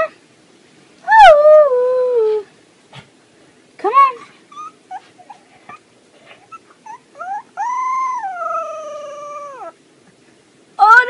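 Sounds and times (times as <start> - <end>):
puppy yipping: 4.5 - 5.8, 6.4 - 9.7
puppy howling: 6.4 - 9.8.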